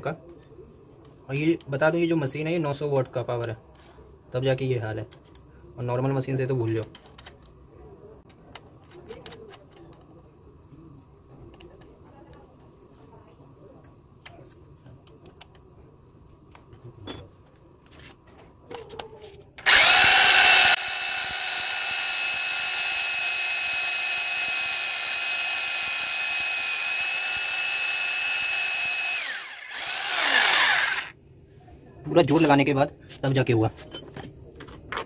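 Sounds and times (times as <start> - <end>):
electric drill boring wood: 19.6 - 31.2.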